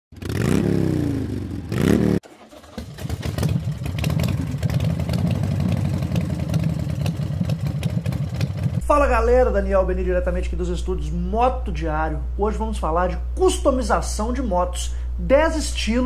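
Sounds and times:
motorcycle engine revving: 0.1 - 8.8
motorcycle engine idling unevenly: 2.4 - 8.9.

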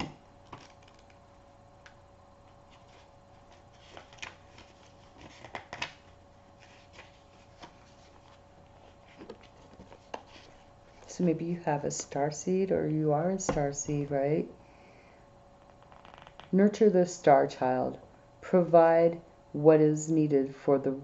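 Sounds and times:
faint steady hum: 0.0 - 21.0
paper pages rustling: 2.7 - 11.1.

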